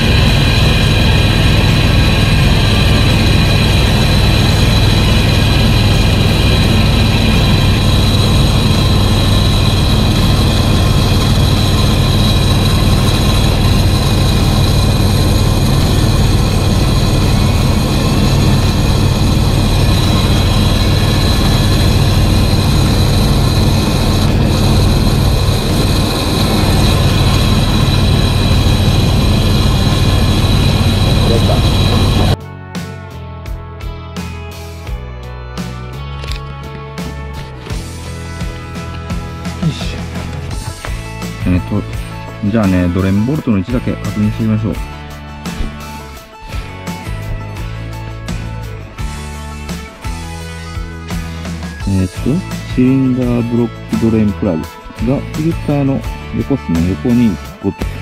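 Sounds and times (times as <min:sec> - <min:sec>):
engine rattle: 0:00.0 - 0:32.4
van engine running: 0:00.0 - 0:32.4, 0:37.0 - 0:57.4.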